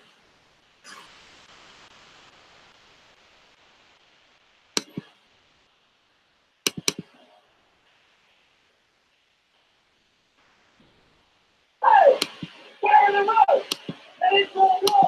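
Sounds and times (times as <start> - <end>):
faint steady hiss: 0.0 - 15.0
sharp clicks: 4.8 - 5.1, 6.6 - 7.2, 12.2 - 12.7, 13.6 - 14.1.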